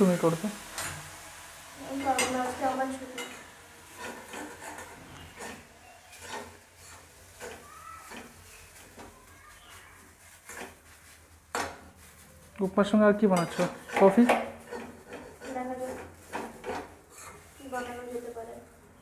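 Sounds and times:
spatula scraping metal pan: 2.0 - 9.2, 10.2 - 10.9, 13.3 - 17.9.

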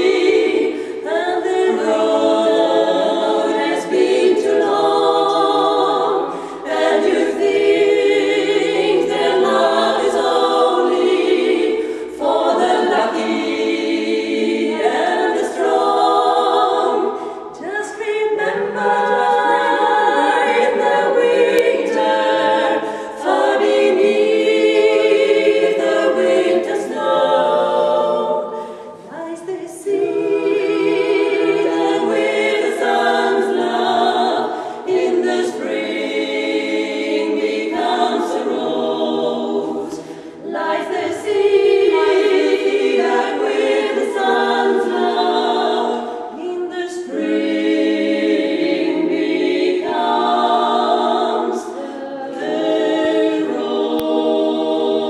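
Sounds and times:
women singing a cappella harmony: 0.0 - 55.0.

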